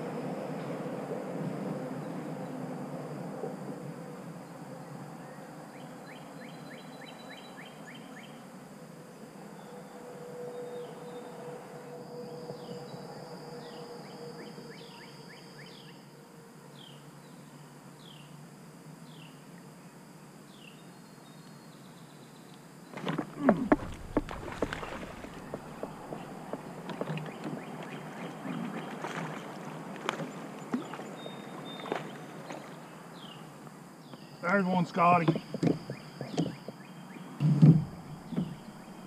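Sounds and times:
steady high hum: 0:00.0 - 0:39.0
birds singing: 0:23.7 - 0:39.0.

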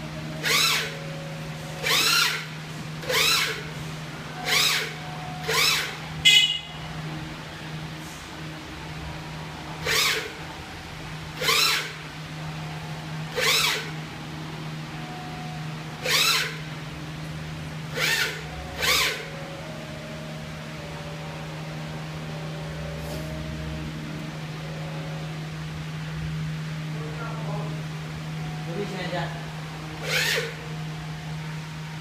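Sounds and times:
printer motors humming: 0:00.0 - 0:32.0
short loud whirring: 0:00.4 - 0:06.8, 0:09.8 - 0:10.4, 0:11.4 - 0:12.0, 0:13.3 - 0:14.0, 0:16.0 - 0:16.7, 0:17.9 - 0:19.4, 0:30.0 - 0:30.7.

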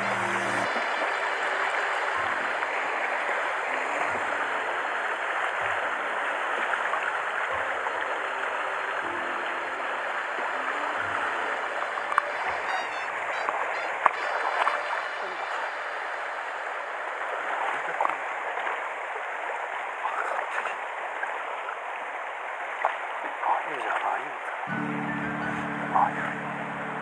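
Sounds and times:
river water rushing over stones: 0:00.0 - 0:24.4.

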